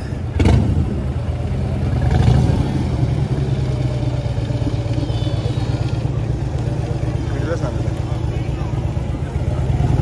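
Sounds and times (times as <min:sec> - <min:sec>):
motorcycle engine revving: 0:00.0 - 0:08.2, 0:08.8 - 0:10.0.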